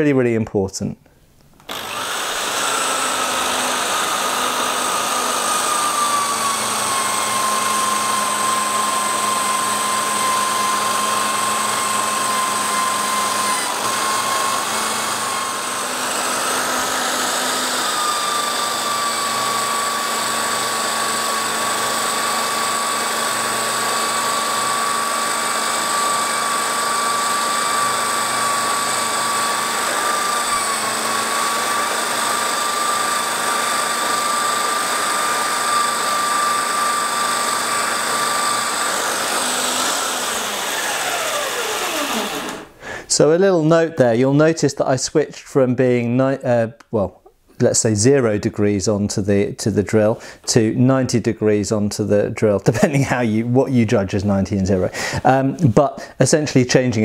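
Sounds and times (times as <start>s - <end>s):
electric drill whine buffing blade: 1.6s - 42.8s.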